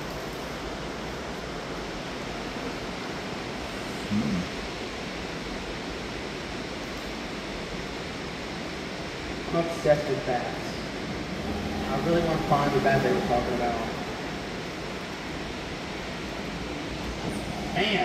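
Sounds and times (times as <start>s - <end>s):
water rushing: 7.8s - 18.0s.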